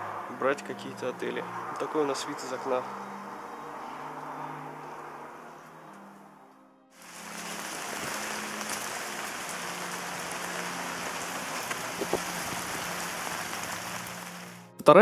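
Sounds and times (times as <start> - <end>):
raindrops tapping: 7.0 - 14.7
steady rain falling: 7.0 - 14.8.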